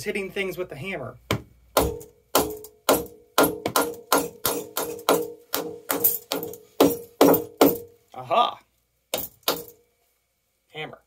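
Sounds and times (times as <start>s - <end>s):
hammer striking cast iron: 1.3s - 7.9s, 9.2s - 9.8s.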